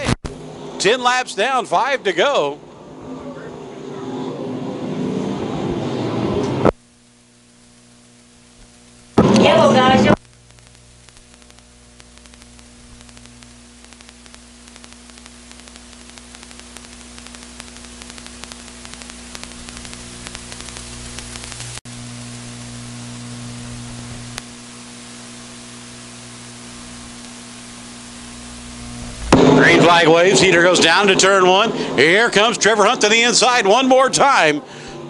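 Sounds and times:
static hiss with crackle: 0:00.0 - 0:02.0, 0:06.6 - 0:34.8
electrical hum: 0:00.0 - 0:35.0.

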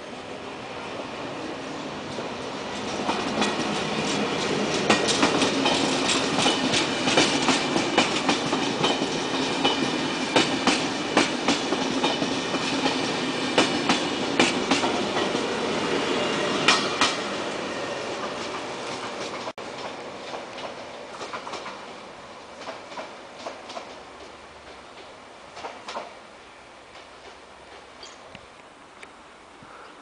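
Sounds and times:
train wheels rumbling on rail: 0:00.1 - 0:28.3
wheels clicking over rail joints: 0:02.1 - 0:15.5, 0:18.2 - 0:21.9, 0:22.6 - 0:26.2, 0:26.8 - 0:28.4.

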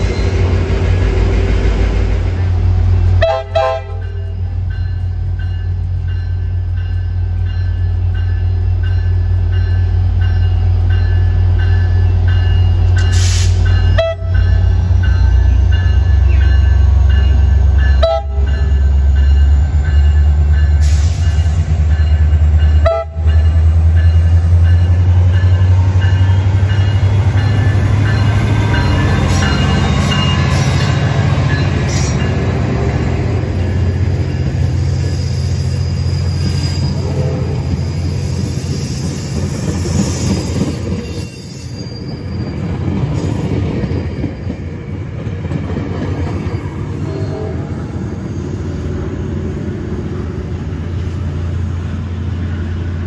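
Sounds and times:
diesel locomotive engine rumble: 0:00.0 - 0:53.0
train horn: 0:03.1 - 0:04.4, 0:13.9 - 0:14.5, 0:17.9 - 0:18.7, 0:22.8 - 0:23.4, 0:36.5 - 0:37.9, 0:47.0 - 0:48.0.

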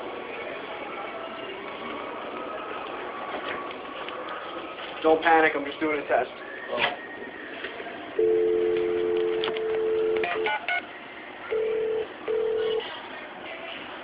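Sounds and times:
telephone dial tone: 0:08.2 - 0:10.6, 0:11.5 - 0:12.8.

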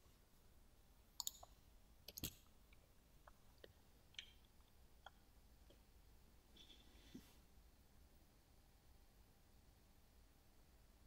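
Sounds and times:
computer mouse clicks: 0:01.2 - 0:02.4.

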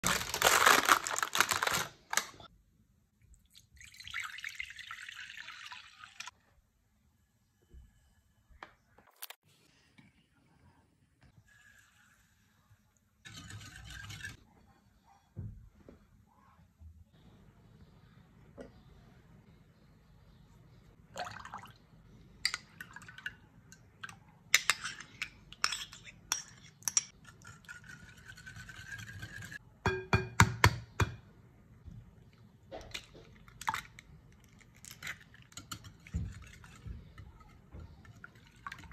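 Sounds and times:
liquid pouring: 0:03.4 - 0:06.3.

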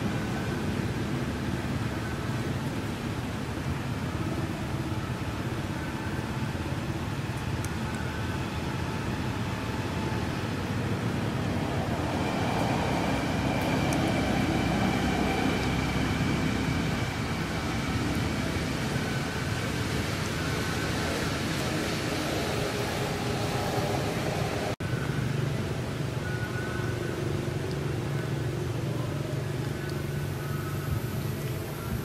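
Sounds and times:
road traffic noise: 0:00.0 - 0:32.0.

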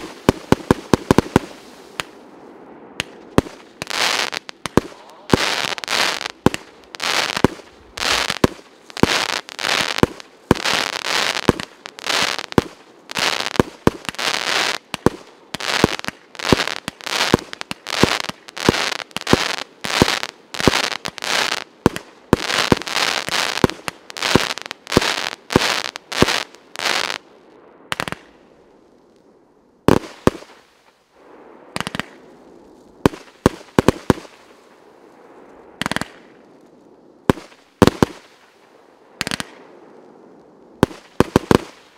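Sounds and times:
fireworks bangs: 0:00.0 - 0:02.2, 0:02.9 - 0:27.2, 0:40.8 - 0:41.9
fireworks crackling: 0:00.0 - 0:27.3, 0:27.9 - 0:29.2, 0:29.9 - 0:41.9.

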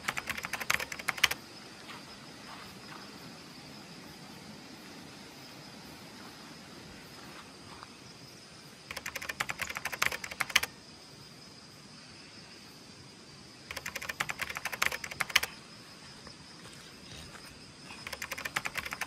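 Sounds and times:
rapid clicking trills: 0:00.0 - 0:01.4, 0:08.9 - 0:10.7, 0:13.7 - 0:15.6, 0:18.0 - 0:19.0.

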